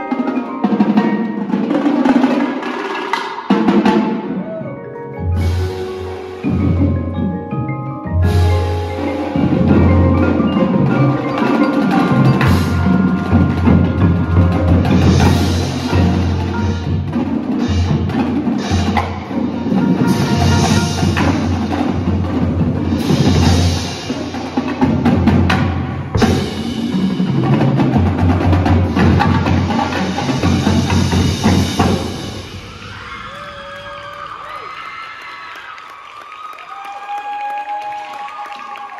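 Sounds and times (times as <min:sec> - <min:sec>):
marimbas and vibraphones: 0:00.0 - 0:33.2
marching drums: 0:05.4 - 0:07.5, 0:08.2 - 0:33.8
cymbals: 0:08.2 - 0:34.3.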